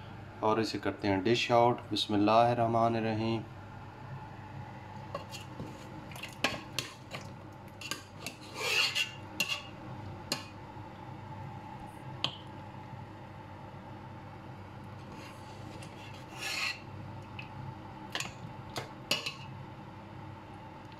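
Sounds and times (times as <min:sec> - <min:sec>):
ladle scraping: 0:05.1 - 0:09.7, 0:15.0 - 0:16.8.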